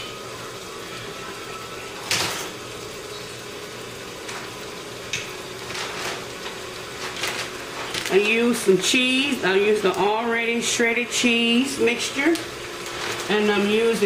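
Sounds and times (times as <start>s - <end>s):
packaging clicks and rustles: 5.6s - 8.4s, 12.3s - 13.8s
food packaging scraping: 5.6s - 8.6s, 12.3s - 14.0s.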